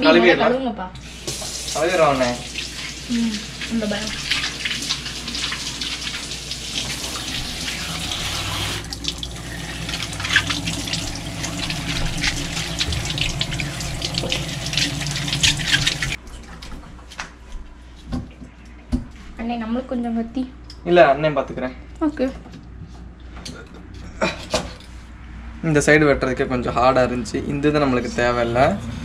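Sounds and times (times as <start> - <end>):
faucet water splashing: 1.0 - 16.2.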